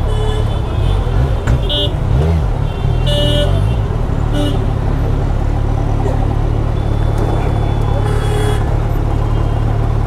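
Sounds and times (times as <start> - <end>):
vehicle horns honking: 0.0 - 4.7, 6.7 - 9.7
motorcycle engine low rumble: 0.0 - 10.0.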